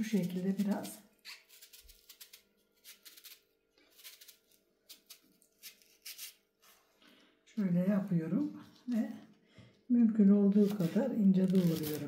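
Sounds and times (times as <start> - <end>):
knife slicing leeks: 0.0 - 6.4, 10.5 - 12.0.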